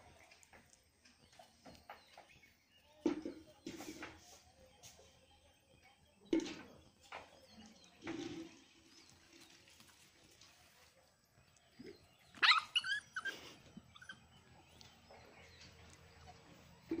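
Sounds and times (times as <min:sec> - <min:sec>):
dog high-pitched cries: 0:12.3 - 0:14.3.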